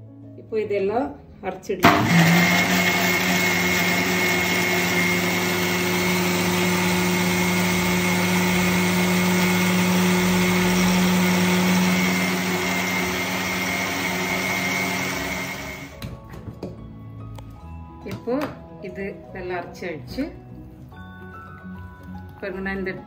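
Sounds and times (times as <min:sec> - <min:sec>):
mixer grinder motor whining: 0:01.8 - 0:16.0.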